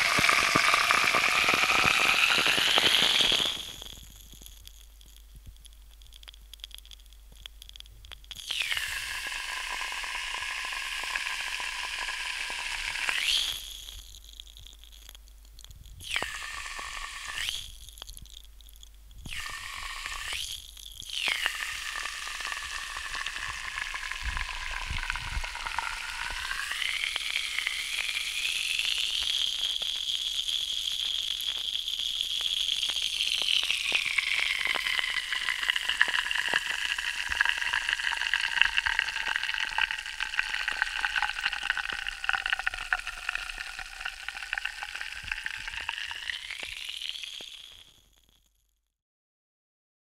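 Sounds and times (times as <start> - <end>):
tablet fizzing in water: 0.0 - 4.0, 8.4 - 14.2, 19.3 - 30.5, 32.4 - 47.8.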